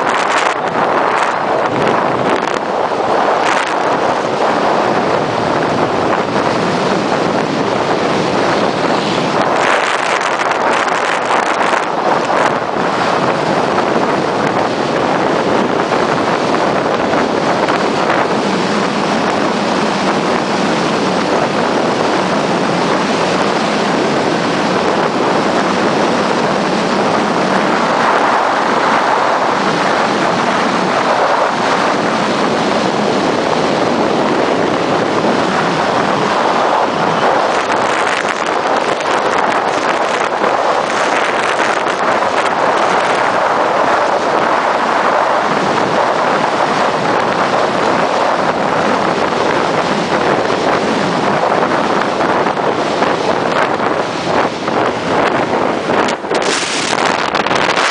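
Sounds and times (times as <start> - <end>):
wind rush: 0.0 - 57.9
tyres on wet road: 25.9 - 54.1, 54.7 - 57.9.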